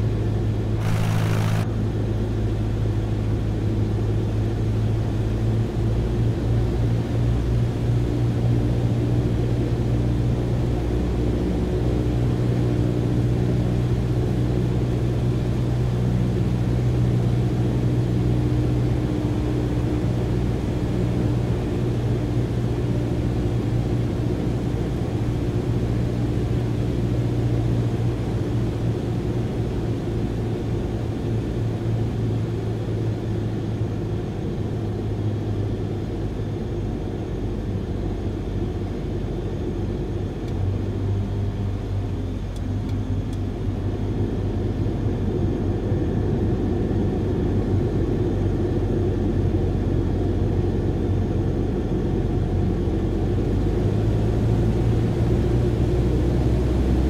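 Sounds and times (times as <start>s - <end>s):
vehicle engine droning: 0.8s - 1.8s.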